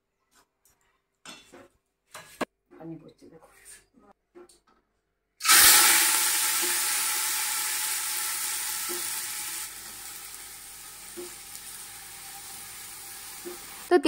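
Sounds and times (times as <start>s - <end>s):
rice sizzling in hot oil: 5.4s - 13.9s.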